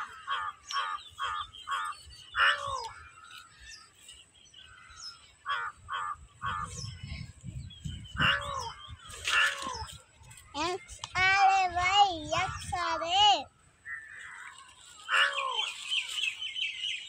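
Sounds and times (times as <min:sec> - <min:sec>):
crows cawing: 0:00.0 - 0:03.9, 0:04.7 - 0:07.1, 0:08.2 - 0:09.9, 0:13.9 - 0:16.0.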